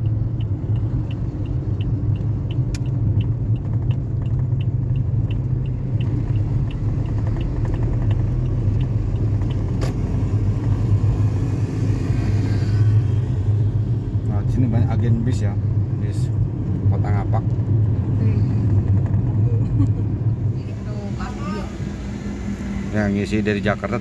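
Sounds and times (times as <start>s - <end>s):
turn signal ticking: 0.0s - 11.5s
car engine and road drone: 0.0s - 24.0s.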